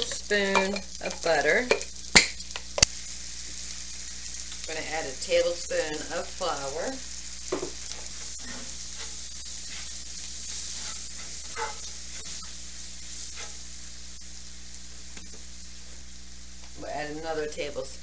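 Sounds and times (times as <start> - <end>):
onions sizzling in a skillet: 0.0 - 18.0
utensil scraping a pan: 7.9 - 12.6, 13.2 - 13.7.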